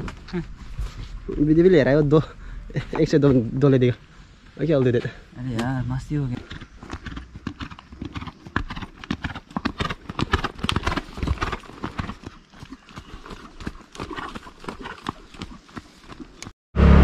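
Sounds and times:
horse hoofbeats on sand: 0:06.0 - 0:16.5.

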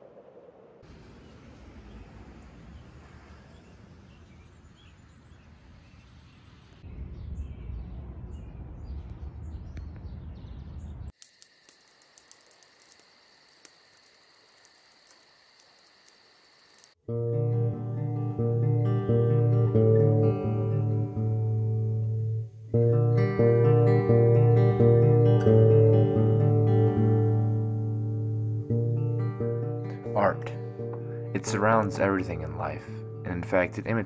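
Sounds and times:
low rumble: 0:00.0 - 0:11.1
bird chirps: 0:03.5 - 0:11.1
high pulsing insect trill: 0:11.2 - 0:17.0, 0:20.0 - 0:23.5.

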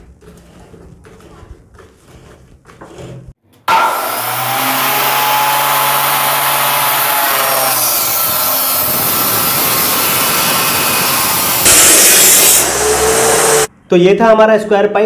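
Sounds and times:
saw grinding through steel tube: 0:00.0 - 0:13.7
chop saw running: 0:03.7 - 0:13.7.

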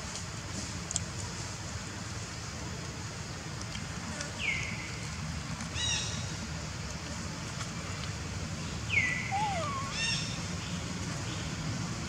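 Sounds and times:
bird whistling call: 0:08.9 - 0:10.3.

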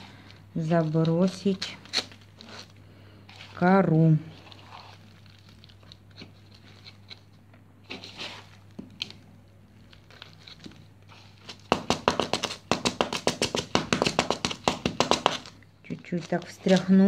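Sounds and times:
bark chips rustling: 0:03.4 - 0:07.3.

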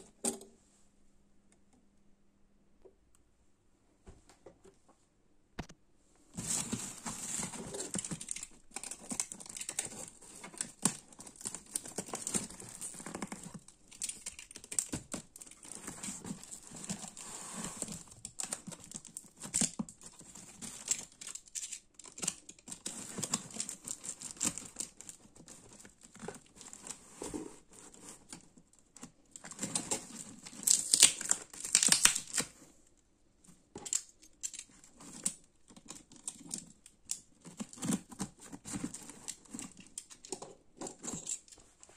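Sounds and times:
cardboard box tearing and rustling: 0:06.4 - 0:13.6.

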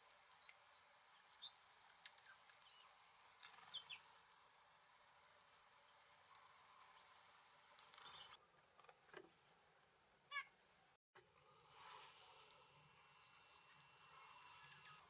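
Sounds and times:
songbirds chirping: 0:00.1 - 0:04.3, 0:05.0 - 0:08.4, 0:12.5 - 0:15.0.

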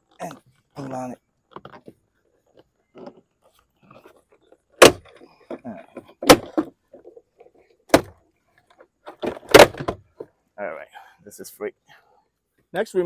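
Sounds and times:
knocks and scrapes: 0:00.1 - 0:10.4.

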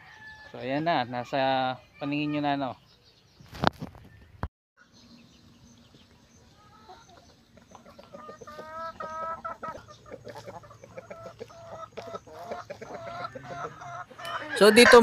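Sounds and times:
chickens clucking: 0:04.8 - 0:15.0.

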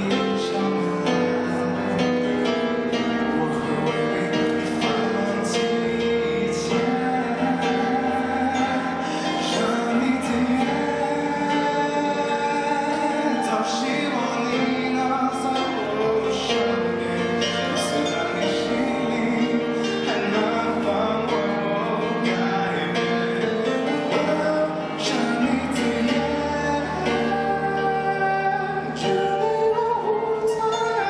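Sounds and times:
digital piano: 0:00.0 - 0:31.0
man singing into microphone: 0:00.0 - 0:31.0.

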